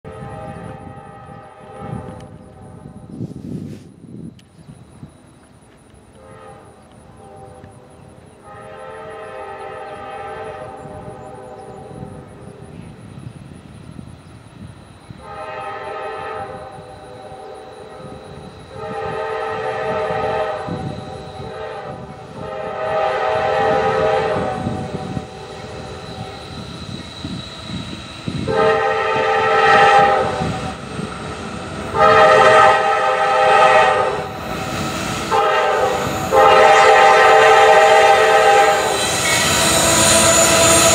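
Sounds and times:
low rumble of train: 0:00.0 - 0:40.9
train air horn blasts: 0:00.1 - 0:03.8, 0:06.1 - 0:12.6, 0:15.2 - 0:40.9.

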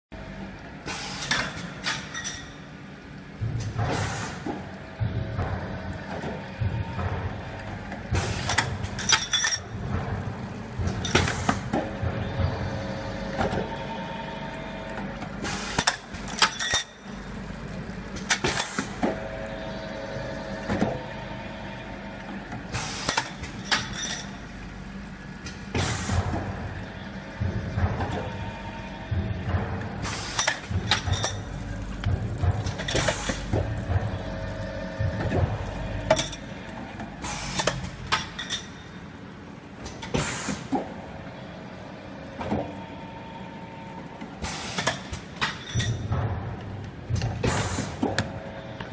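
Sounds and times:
motor hum: 0:02.6 - 0:40.1
steady machine tone: 0:12.0 - 0:15.5, 0:30.7 - 0:39.4.

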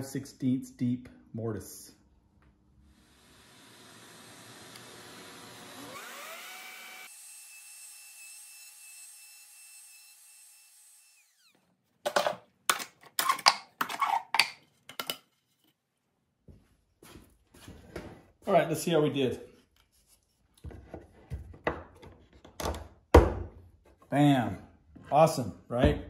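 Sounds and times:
router whine spinning down: 0:03.2 - 0:08.7, 0:10.0 - 0:11.6.

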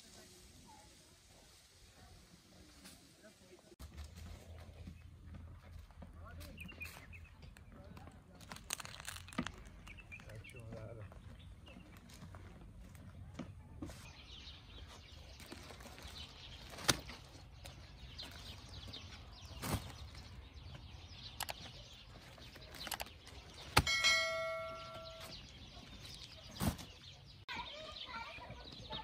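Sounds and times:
ringing strike on metal: 0:23.8 - 0:25.4.

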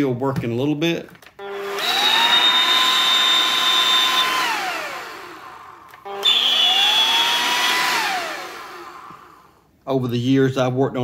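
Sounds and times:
blower motor whine: 0:01.4 - 0:09.6.

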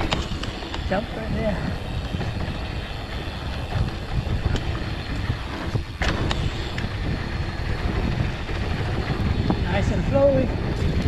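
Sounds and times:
bike clicks and rattles: 0:00.0 - 0:11.0
bike tyres running on dirt: 0:00.0 - 0:11.0
wind rushing over microphone: 0:00.0 - 0:11.0.

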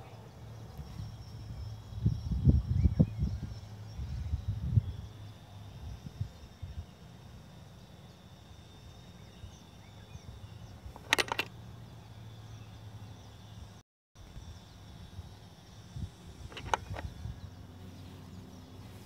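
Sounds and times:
steady low hum: 0:00.0 - 0:19.0
sharp clicks: 0:10.9 - 0:11.5, 0:16.5 - 0:17.2.

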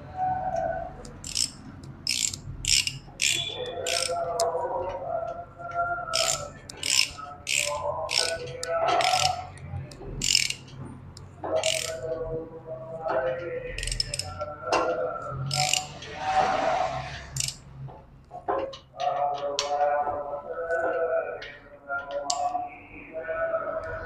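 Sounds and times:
ratchet wrench clicking: 0:01.0 - 0:04.5, 0:06.1 - 0:12.2, 0:13.8 - 0:14.4, 0:15.5 - 0:16.0, 0:17.4 - 0:17.6.

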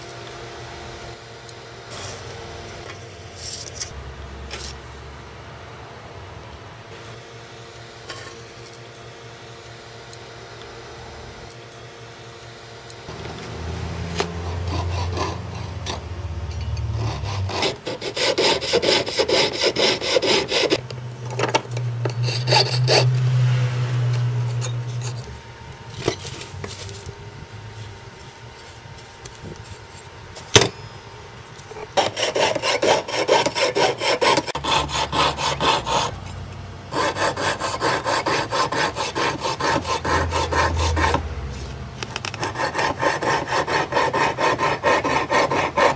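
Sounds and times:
piercing saw cutting metal: 0:13.1 - 0:25.4, 0:31.9 - 0:36.3, 0:36.9 - 0:41.3, 0:42.3 - 0:45.9.

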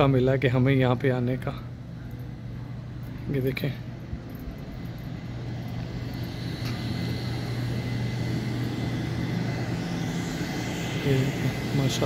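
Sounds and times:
vacuum cleaner running: 0:05.8 - 0:12.0.

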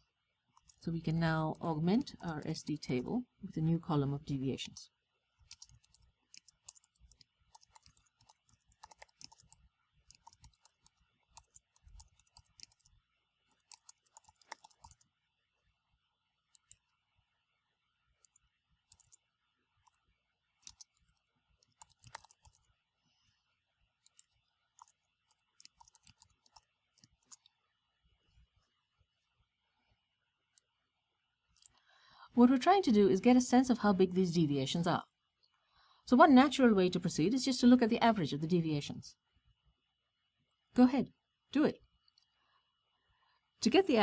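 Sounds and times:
faint keyboard keystrokes: 0:05.4 - 0:12.9, 0:13.5 - 0:15.1, 0:18.2 - 0:19.2, 0:20.6 - 0:22.7, 0:24.0 - 0:27.6.

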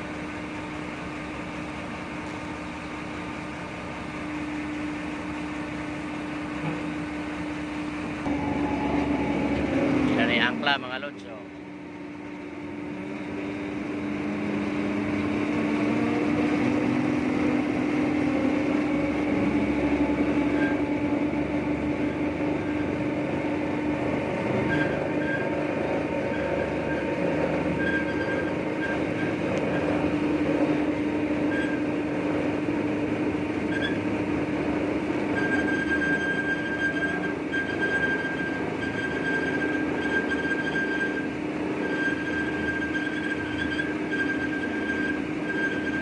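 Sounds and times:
short high squeals: 0:19.5 - 0:23.6, 0:24.4 - 0:30.8, 0:31.4 - 0:32.0, 0:33.6 - 0:34.1, 0:35.2 - 0:46.0.

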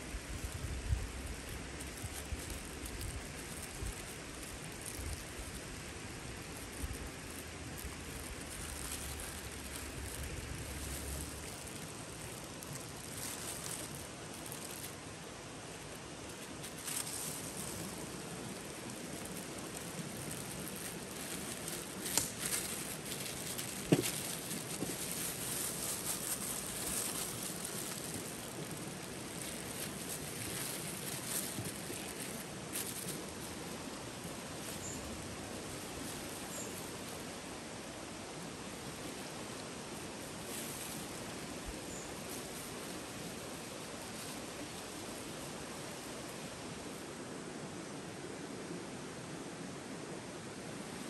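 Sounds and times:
plastic sheeting crinkling: 0:00.1 - 0:37.3
sharp clicks and crackles: 0:20.0 - 0:28.7.

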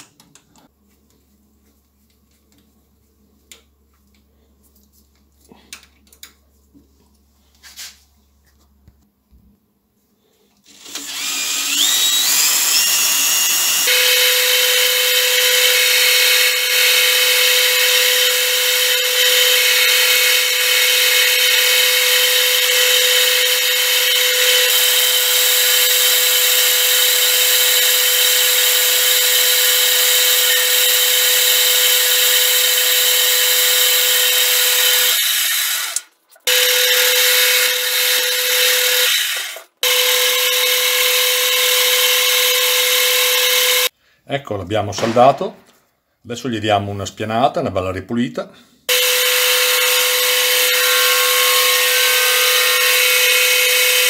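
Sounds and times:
cordless drill whining: 0:10.6 - 0:43.9, 0:48.9 - 0:54.0
metal lathe cutting: 0:11.0 - 0:43.9, 0:48.9 - 0:54.0.

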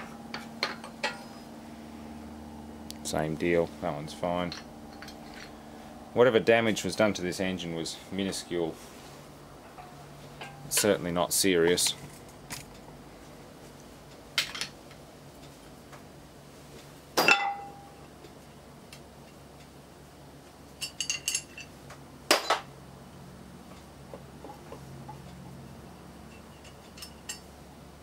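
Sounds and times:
metal engine parts clinking: 0:00.3 - 0:01.5, 0:04.4 - 0:05.6, 0:20.8 - 0:22.7, 0:26.2 - 0:27.5.

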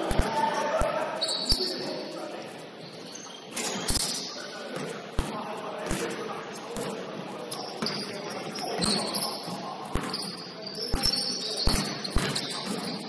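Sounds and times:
sneakers squeaking on court: 0:00.0 - 0:01.9, 0:02.8 - 0:06.1, 0:06.7 - 0:13.0
basketball bouncing: 0:09.9 - 0:13.0.

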